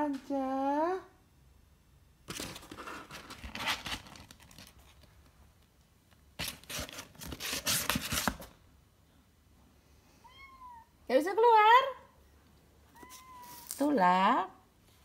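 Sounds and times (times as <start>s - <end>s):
kitten claws scratching cardboard: 6.4s - 8.5s.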